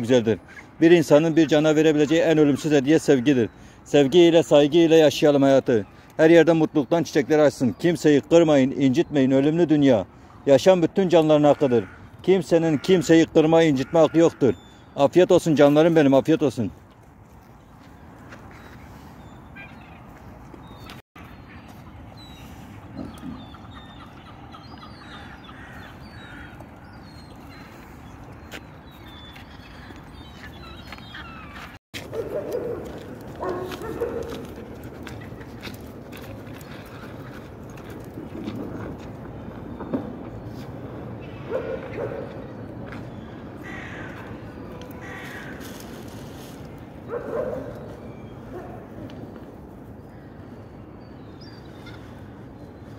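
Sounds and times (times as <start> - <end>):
birds calling: 0.0 - 52.9
outdoor background noise: 0.0 - 52.9
crows cawing: 11.3 - 14.9, 23.8 - 28.6, 42.9 - 46.2.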